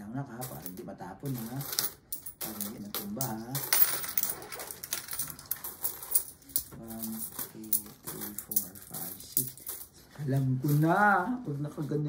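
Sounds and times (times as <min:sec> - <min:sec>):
coins clinking: 0:00.3 - 0:10.0.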